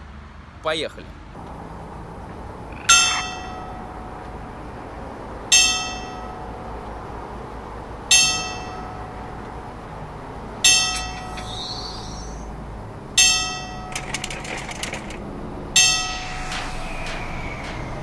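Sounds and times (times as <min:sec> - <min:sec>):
clock striking on a bell: 0:02.8 - 0:04.6, 0:05.5 - 0:07.0, 0:08.1 - 0:10.0, 0:10.6 - 0:11.4, 0:13.2 - 0:14.1, 0:15.8 - 0:17.8.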